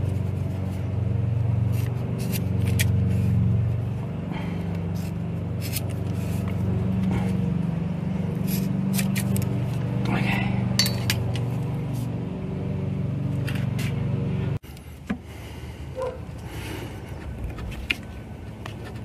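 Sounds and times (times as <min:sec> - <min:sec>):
lawn mower engine: 0:00.0 - 0:15.9
scissor snips: 0:08.5 - 0:09.5.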